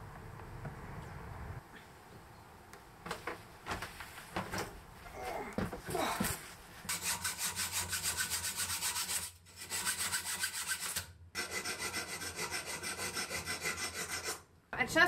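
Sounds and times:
hacksaw cutting metal: 6.9s - 14.4s.

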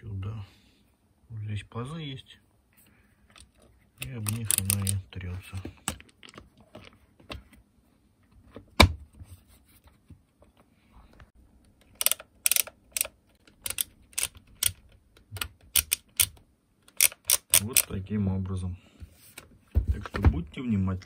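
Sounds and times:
dial clicking through detents: 4.0s - 5.0s, 11.8s - 17.9s.

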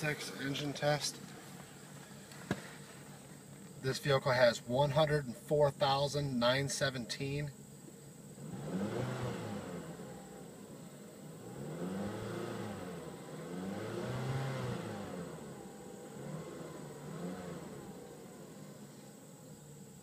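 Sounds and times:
car engine revving: 7.5s - 20.0s.

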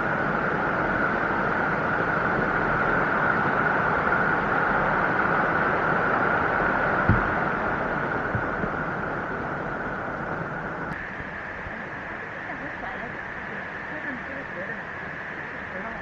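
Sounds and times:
stream rushing over rocks: 6.6s - 9.4s
short low knock: 7.1s - 7.4s.

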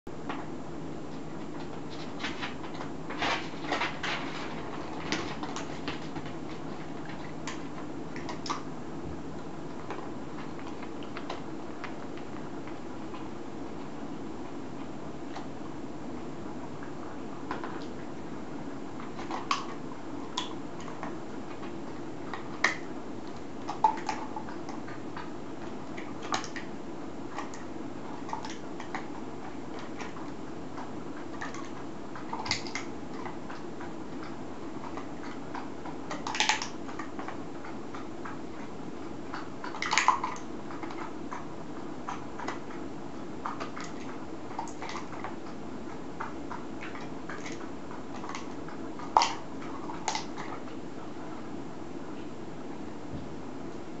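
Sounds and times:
low room hum: 0.1s - 54.0s.

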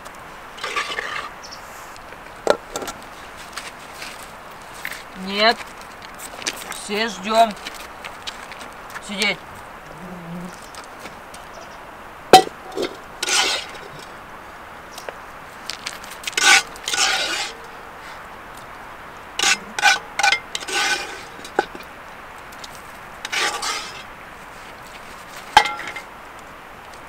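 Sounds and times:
utensil scraping metal cookware: 0.6s - 1.3s, 12.4s - 14.1s, 16.4s - 17.6s, 19.4s - 21.9s, 23.2s - 24.1s, 25.6s - 26.1s.

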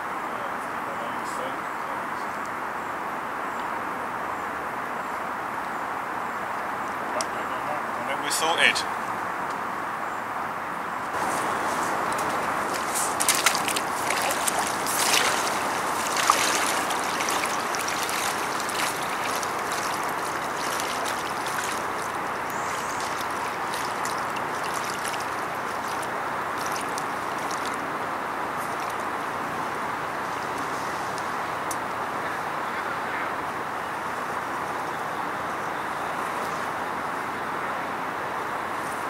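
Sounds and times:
rushing sloshing water: 11.2s - 32.1s.

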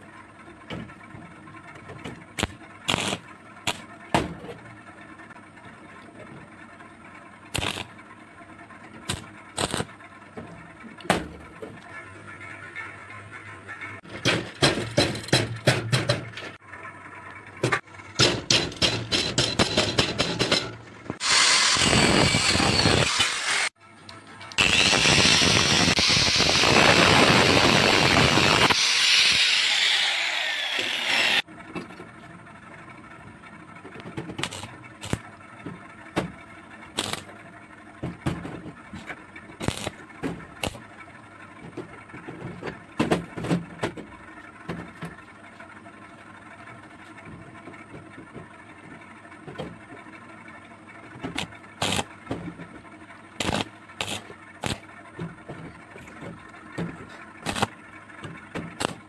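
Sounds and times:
angle grinder cutting metal: 2.4s - 3.8s, 7.6s - 7.9s, 9.1s - 9.9s, 21.2s - 23.8s, 24.6s - 31.4s, 37.0s - 37.2s, 39.6s - 39.9s, 51.4s - 52.0s, 53.4s - 54.8s, 57.5s - 57.7s.

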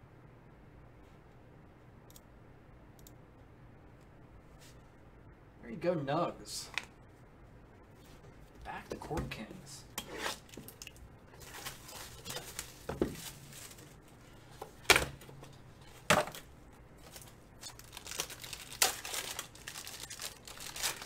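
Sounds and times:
foil pack crinkling and ripping: 10.4s - 14.0s, 17.0s - 21.0s.

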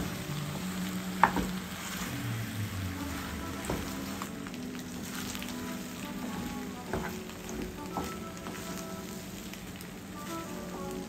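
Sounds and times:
pasta sizzling in a pan: 0.0s - 11.0s
wooden spoon stirring: 3.0s - 11.0s.

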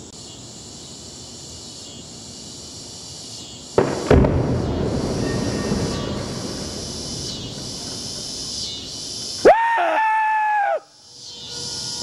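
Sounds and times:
high insect chorus: 0.0s - 12.0s
low rumble of blast: 3.8s - 9.4s
loud high gliding call: 8.6s - 12.0s.

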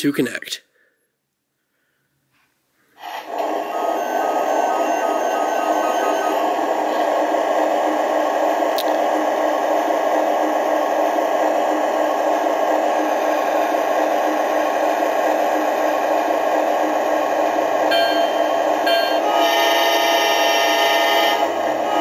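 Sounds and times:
toy train diesel engine sound: 3.0s - 22.0s.

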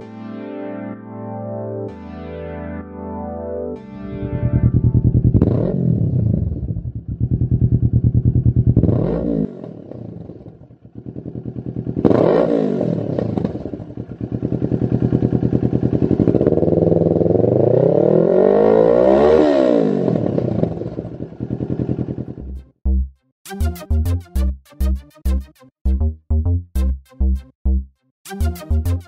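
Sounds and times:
motorcycle engine revving: 4.1s - 22.6s.

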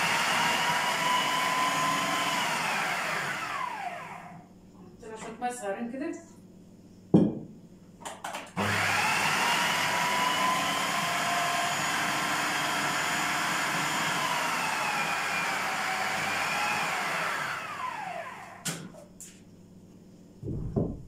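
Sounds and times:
electric blender motor whining: 0.0s - 4.4s, 8.6s - 18.8s.

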